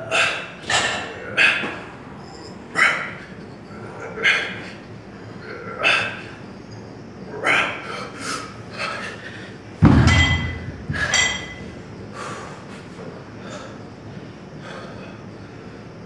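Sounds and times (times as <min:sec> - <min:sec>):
metal gym weights clanking: 0:09.8 - 0:11.8.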